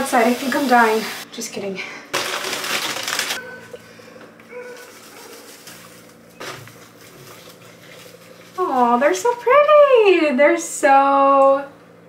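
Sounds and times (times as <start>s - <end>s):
paper wrapping crinkling: 2.1s - 3.4s, 4.5s - 9.4s.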